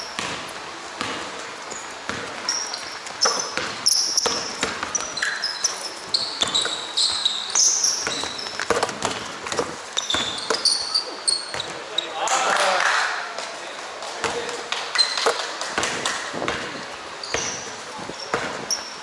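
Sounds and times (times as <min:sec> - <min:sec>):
basketball bouncing: 0:00.0 - 0:11.8, 0:15.2 - 0:18.9
sneakers squeaking on floor: 0:00.0 - 0:12.2, 0:14.2 - 0:19.0.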